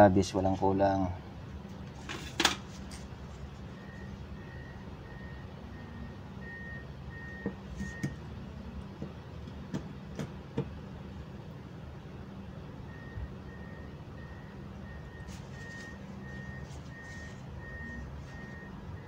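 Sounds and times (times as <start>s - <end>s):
low engine hum: 2.6s - 19.0s
reversing alarm beeping: 3.8s - 8.1s, 12.9s - 19.0s.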